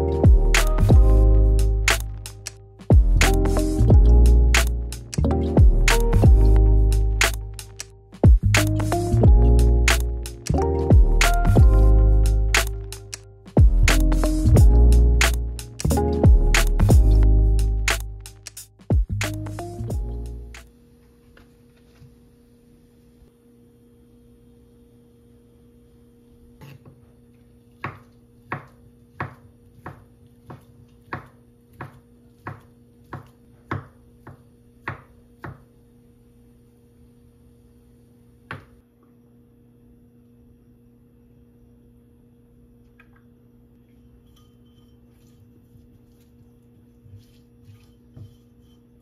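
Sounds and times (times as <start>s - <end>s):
knife chopping on wooden board: 27.8s - 35.7s
brush scraping in pot: 44.0s - 49.0s.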